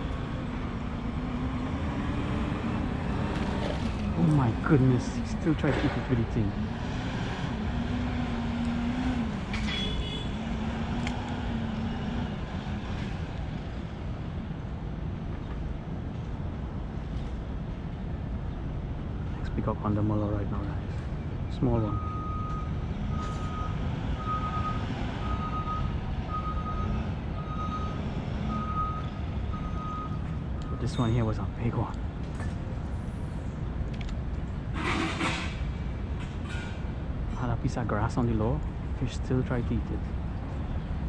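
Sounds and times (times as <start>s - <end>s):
road traffic rumble: 0.0s - 41.0s
vehicle engine hum: 0.0s - 41.0s
reversing alarm beeping: 21.9s - 30.9s.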